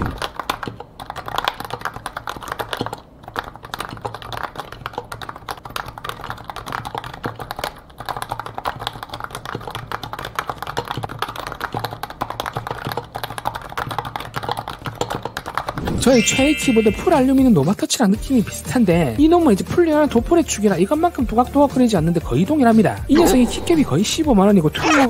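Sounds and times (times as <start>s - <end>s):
fast typing on keyboard: 0.0s - 17.6s.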